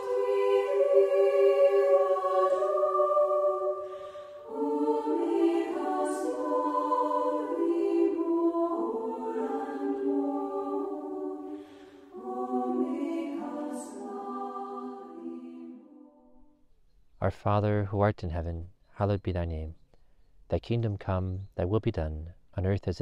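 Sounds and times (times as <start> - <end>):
choir singing a hymn: 0.0 - 16.3.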